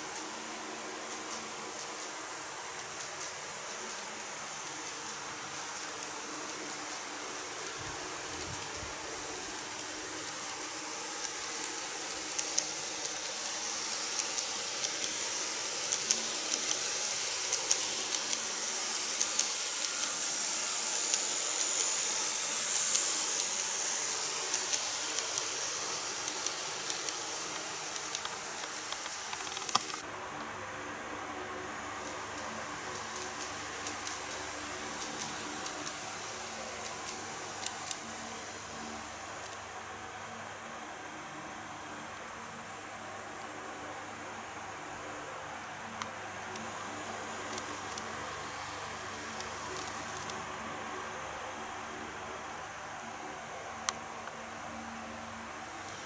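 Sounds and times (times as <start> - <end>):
model train motor hiss: 0.0 - 30.1, 31.4 - 41.4, 45.3 - 51.0.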